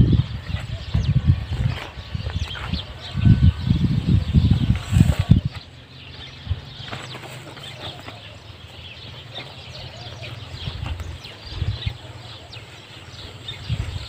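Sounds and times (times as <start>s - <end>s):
chickens clucking: 0.0s - 14.0s.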